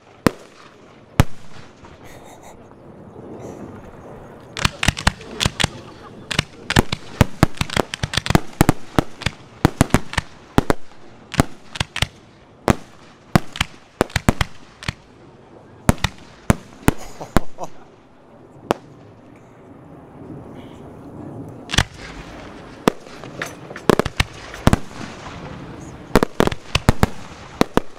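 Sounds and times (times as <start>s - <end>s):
firework shells bursting: 4.6s - 15.1s, 21.7s - 25.5s, 26.2s - 27.9s.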